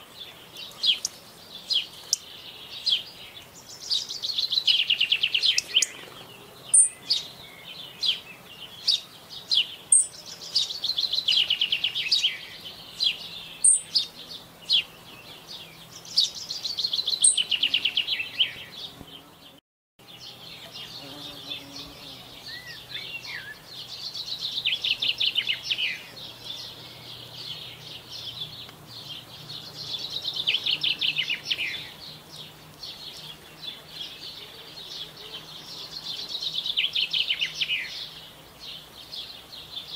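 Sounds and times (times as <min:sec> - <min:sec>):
songbird trilling: 0:00.5 - 0:18.9, 0:20.2 - 0:38.2.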